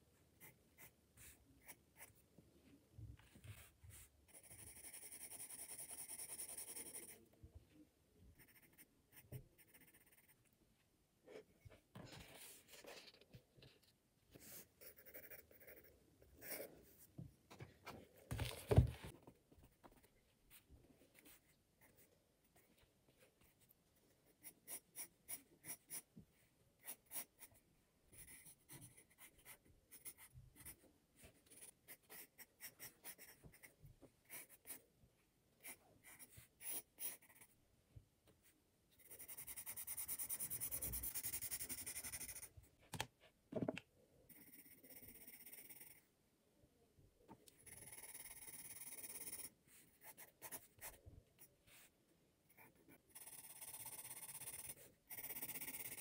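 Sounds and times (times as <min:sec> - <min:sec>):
pencil scratching on paper: 0:03.3 - 0:07.2, 0:08.4 - 0:10.5, 0:14.3 - 0:17.0, 0:19.7 - 0:26.1, 0:26.8 - 0:34.8, 0:35.6 - 0:37.5, 0:39.0 - 0:42.5, 0:44.3 - 0:46.0, 0:47.6 - 0:51.0, 0:52.5 - 0:56.0.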